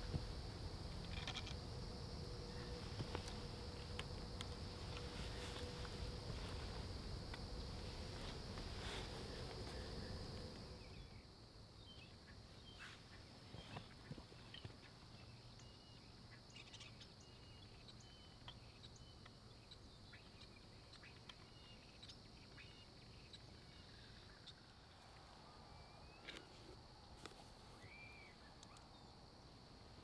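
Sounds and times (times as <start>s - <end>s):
high insect-like hum: 0.0s - 30.0s
whistled bird calls: 27.8s - 29.1s.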